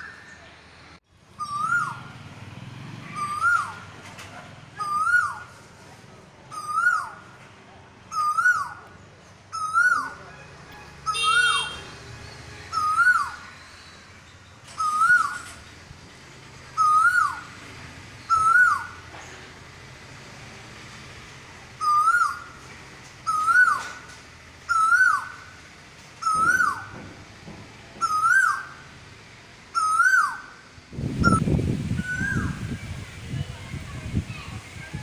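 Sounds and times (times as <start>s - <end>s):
bird calling rising notes: 1.3s - 2.2s, 2.8s - 4.0s, 4.8s - 5.6s, 6.5s - 7.2s, 8.1s - 8.8s, 9.5s - 10.2s, 11.0s - 14.0s, 14.7s - 15.8s, 16.7s - 19.0s, 21.8s - 22.6s, 23.2s - 24.1s, 24.7s - 25.6s, 26.2s - 27.0s, 28.0s - 28.9s, 29.7s - 33.0s.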